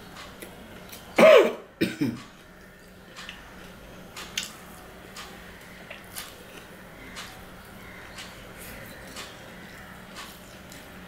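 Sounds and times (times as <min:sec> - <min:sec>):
soft clicks of eating: 0:00.0 - 0:01.2, 0:02.1 - 0:11.0
man coughing: 0:01.2 - 0:02.2.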